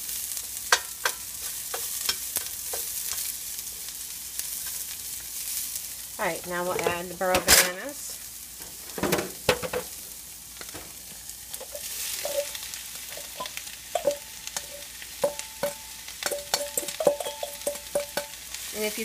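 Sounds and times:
food sizzling in hot oil: 0.0s - 19.0s
utensil scraping and tapping bowl: 13.1s - 18.4s.

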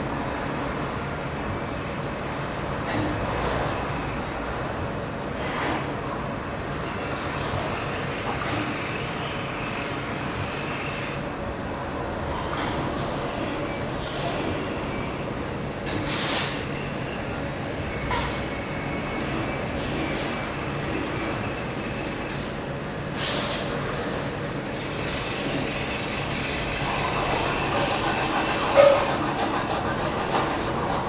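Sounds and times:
high beep: 17.9s - 19.4s
short hiss bursts: 23.2s - 23.7s
welding hiss: 23.2s - 23.7s.

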